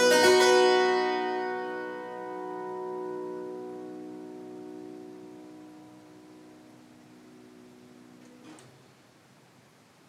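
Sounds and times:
harpsichord chord ringing: 0.0s - 7.6s.

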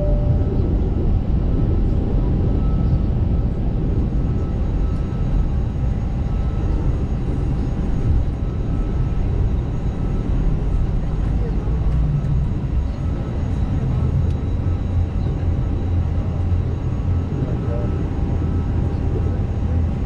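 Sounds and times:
faint high whine: 0.0s - 1.1s
airliner engines rumbling: 0.0s - 20.0s.

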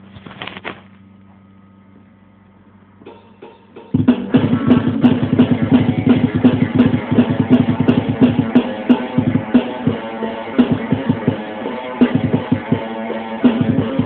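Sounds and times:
faint steady hum: 0.0s - 14.0s
hits: 3.0s - 14.0s
rock guitar and drums: 3.0s - 14.0s.

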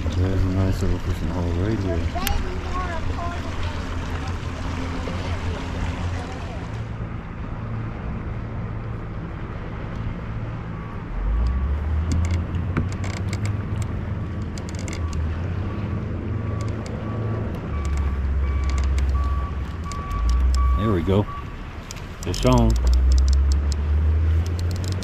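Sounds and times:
light clicks: 21.8s - 25.0s.

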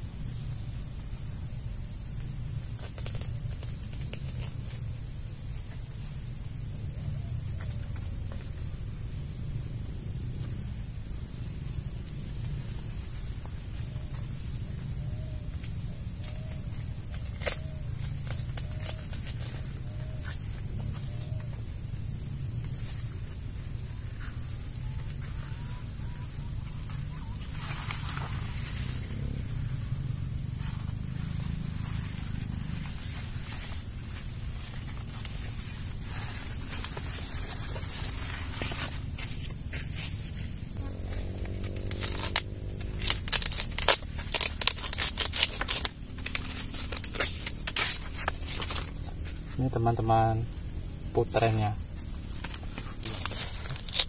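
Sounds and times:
rustling of corn plants: 2.6s - 6.2s, 11.8s - 21.7s, 22.6s - 50.4s, 51.1s - 54.0s
corn stalk snapping and tearing: 2.8s - 4.8s, 16.2s - 19.6s, 41.2s - 48.9s, 52.5s - 54.0s.

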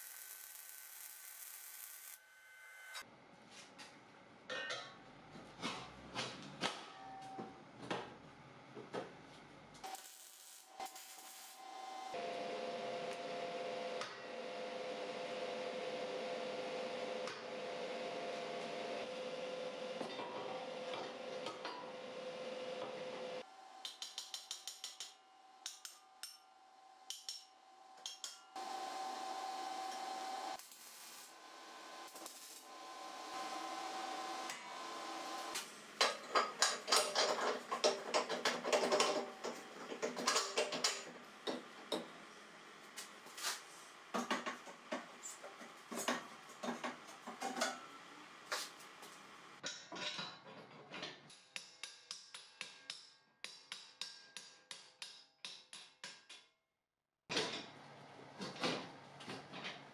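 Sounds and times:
metal clanks and taps: 36.0s - 42.1s.

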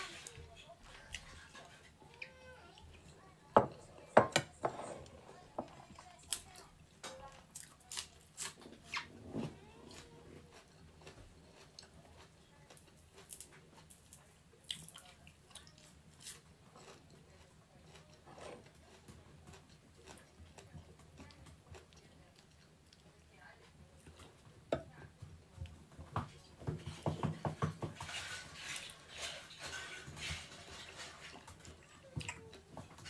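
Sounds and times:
chewing and mouth smacks: 10.0s - 23.1s.

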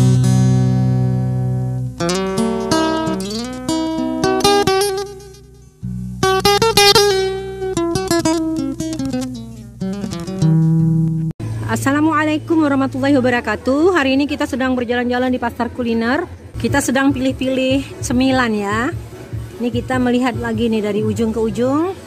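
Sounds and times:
plucked acoustic guitar music: 0.0s - 11.3s.

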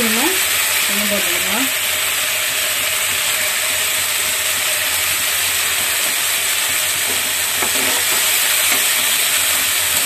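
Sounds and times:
vegetables sizzling in hot oil: 0.0s - 10.0s
scraping in a wok: 5.6s - 10.0s.

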